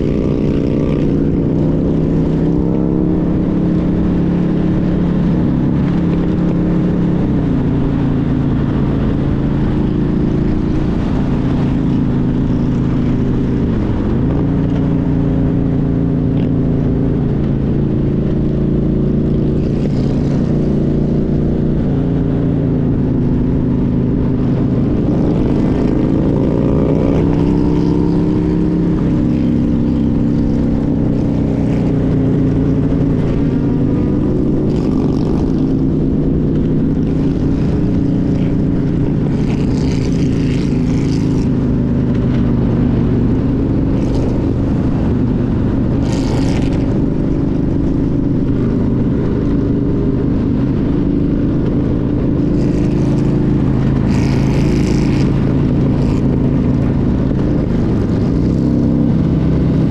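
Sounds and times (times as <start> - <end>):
motorcycle engine running: 0.0 - 59.9
wind noise on microphone: 0.0 - 59.9.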